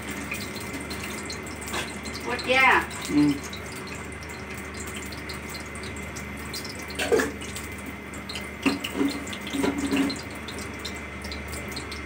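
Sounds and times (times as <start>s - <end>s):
gas stove hissing: 0.0s - 3.4s.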